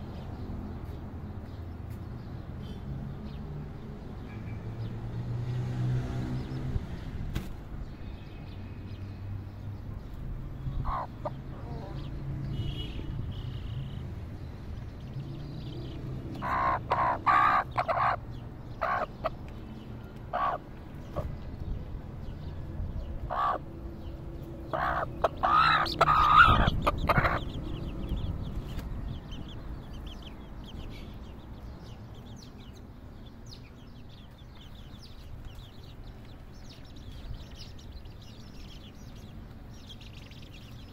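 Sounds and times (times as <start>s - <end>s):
chicks peeping: 10.0s - 12.2s, 14.7s - 40.9s
hen clucking: 10.8s - 12.1s, 16.3s - 19.4s, 20.2s - 21.3s, 23.2s - 23.7s, 24.6s - 28.8s.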